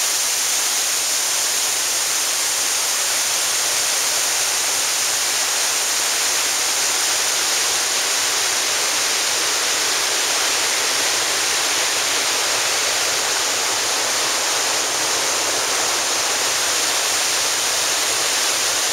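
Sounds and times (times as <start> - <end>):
waterfall rushing: 0.0 - 18.9.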